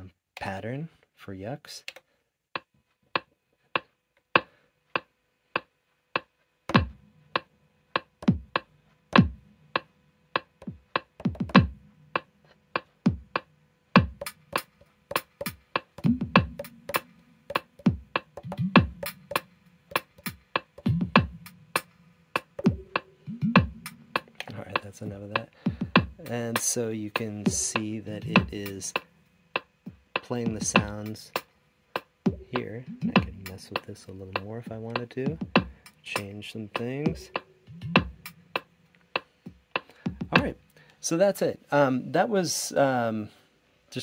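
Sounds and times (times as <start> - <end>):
drum machine beat: 2.6 - 40.7
low kick drums: 6.7 - 7.0, 8.2 - 8.6, 9.2 - 9.4, 10.6 - 11.9, 13.1 - 13.4, 14.0 - 14.3, 15.4 - 17.0, 17.8 - 19.3, 20.2 - 21.6, 22.6 - 26.4, 27.2 - 28.6, 29.9 - 31.1, 32.3 - 33.6, 34.3 - 35.8, 36.8 - 38.3, 39.5 - 40.6.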